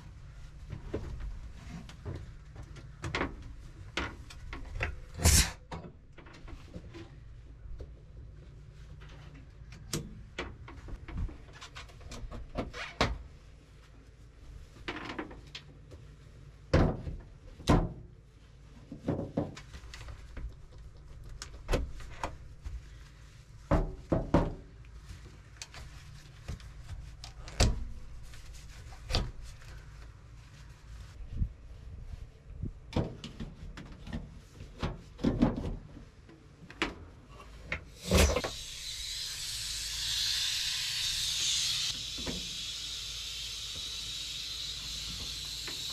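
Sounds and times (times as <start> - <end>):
steady low hum: 38.0 - 45.9.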